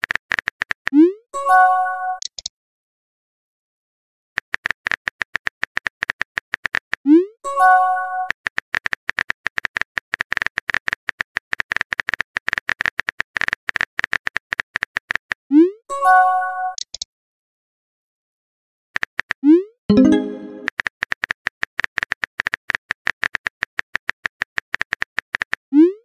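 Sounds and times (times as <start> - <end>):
bright multi-tone chime: 19.9 - 20.7.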